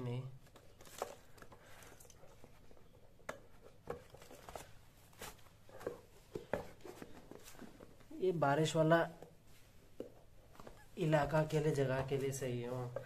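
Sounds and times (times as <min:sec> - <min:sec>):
rubber clogs tapping and rustling: 0:00.5 - 0:08.1.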